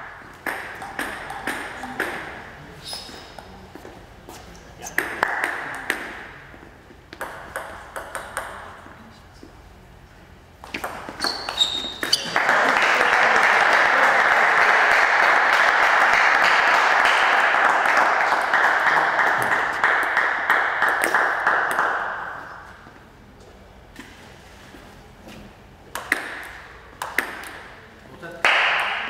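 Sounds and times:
table tennis ball hits: 0.0 - 2.5, 5.0 - 6.4, 7.2 - 8.8, 10.6 - 12.4, 25.9 - 27.8, 28.5 - 29.0
crowd applauding: 12.1 - 22.5.

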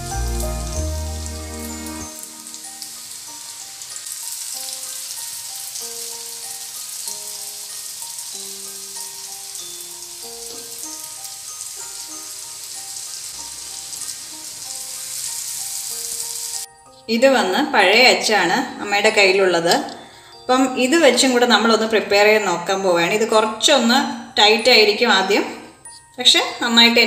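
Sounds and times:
hot oil sizzling: 0.0 - 16.8
slow instrumental melody: 0.0 - 25.0, 25.6 - 26.6.

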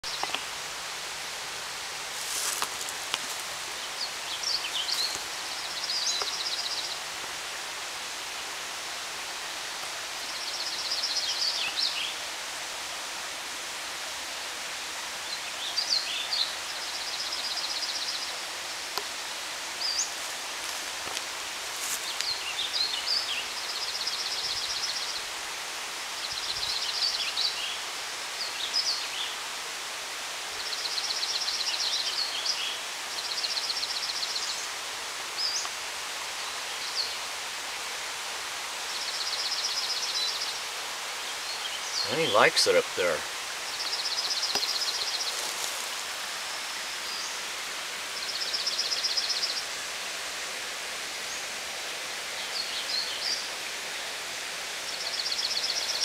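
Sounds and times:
steady outdoor hiss: 0.0 - 56.0
songbird singing with trill: 3.8 - 7.0, 41.4 - 45.4, 54.8 - 56.0.

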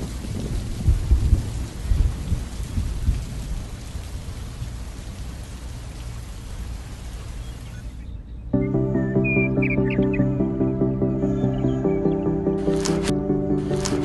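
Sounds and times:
low thunder rumble: 0.0 - 3.8
heavy rain falling: 0.0 - 7.9, 11.0 - 14.0.

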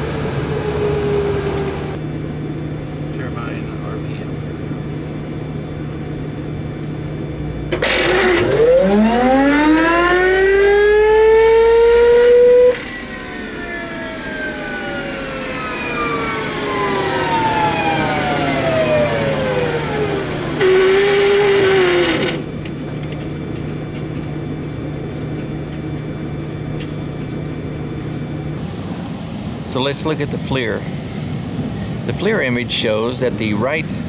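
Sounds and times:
turbine engine starter whine: 0.0 - 2.0, 6.8 - 28.9
turbine spool winding down: 0.0 - 2.0, 7.4 - 22.7.

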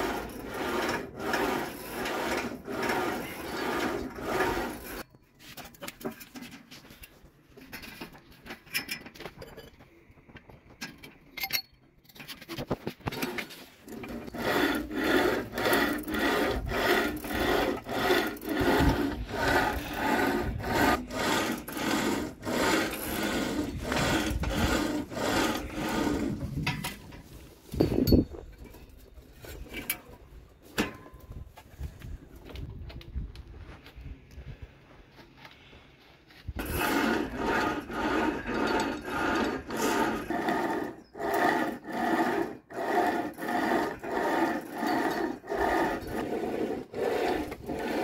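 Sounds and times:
hand saw sawing: 0.0 - 5.1, 13.1 - 26.6, 36.6 - 48.0.

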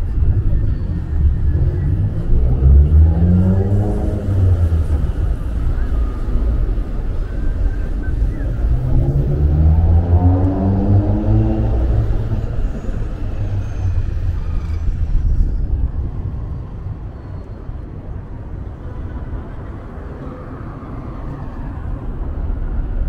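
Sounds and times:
traffic rumble: 0.0 - 23.0
vehicle engine accelerating past: 1.2 - 15.5.

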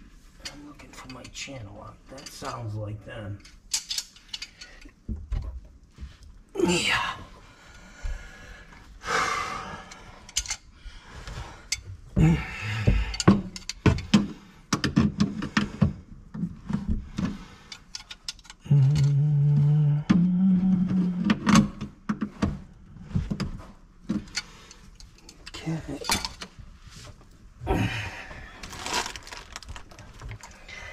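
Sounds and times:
tools and fittings clattering: 0.4 - 5.5, 9.9 - 10.6, 12.8 - 19.2, 23.2 - 26.6.

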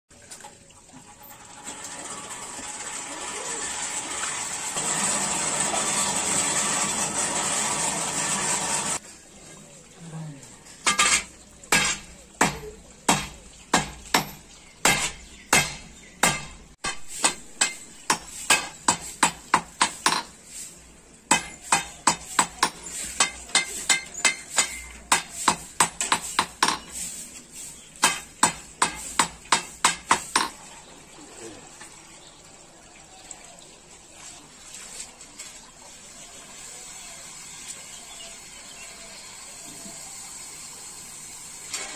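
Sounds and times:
hammer striking metal on anvil: 10.9 - 20.3, 21.3 - 26.8.

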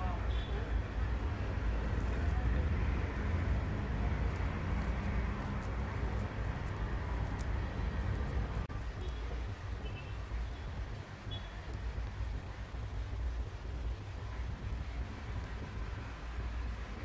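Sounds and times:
soft ticks of hands stuffing: 4.3 - 12.3.

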